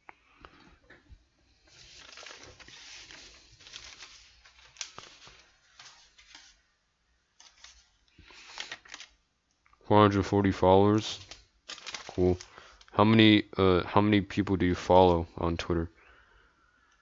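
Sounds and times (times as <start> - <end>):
faint rustling near microphone: 0.6 - 6.6.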